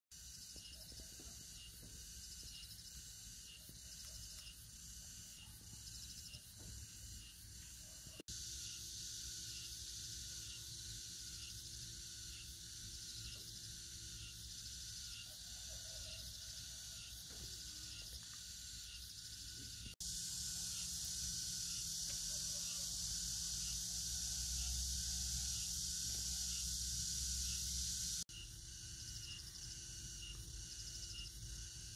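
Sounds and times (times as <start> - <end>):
insects trilling: 0.2 - 31.9.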